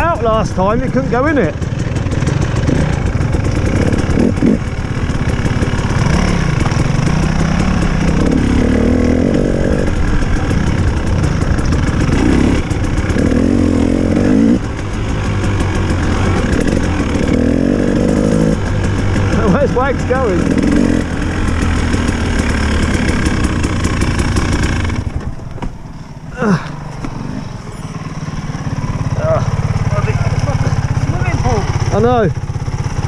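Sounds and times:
dirt bike engine revving: 0:00.0 - 0:33.0.

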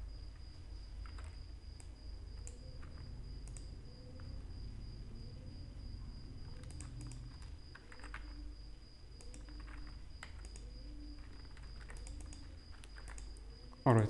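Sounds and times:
high-pitched whine: 0:00.0 - 0:14.0
low hum: 0:00.0 - 0:14.0
keyboard and mouse clicks: 0:01.0 - 0:04.3, 0:06.4 - 0:08.5, 0:09.2 - 0:13.8.

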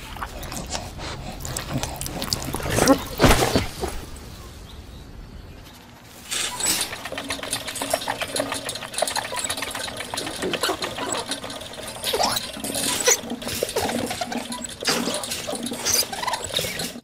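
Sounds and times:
hamster wheel clicking rattle: 0:06.3 - 0:17.0.

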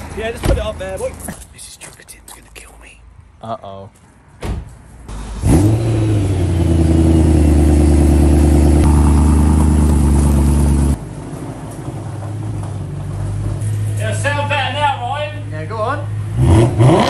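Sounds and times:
car engine idling loudly: 0:07.2 - 0:11.0.

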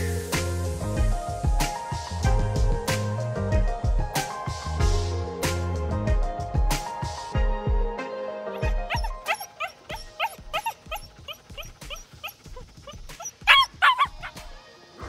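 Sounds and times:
puppy whining and yipping: 0:08.5 - 0:14.5.

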